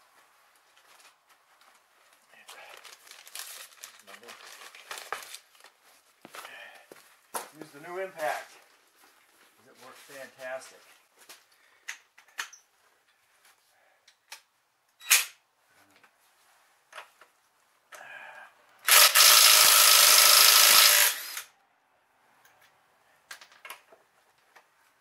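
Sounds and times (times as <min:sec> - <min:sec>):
impact wrench running: 0:18.8 - 0:21.5.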